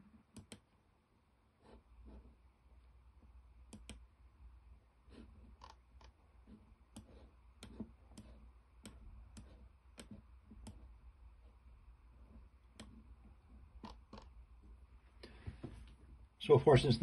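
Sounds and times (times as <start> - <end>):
low steady hum: 0.0 - 17.0
computer mouse clicks: 0.3 - 0.7, 3.7 - 4.0, 5.5 - 6.2, 6.9 - 10.8, 12.7 - 13.0, 13.8 - 14.3.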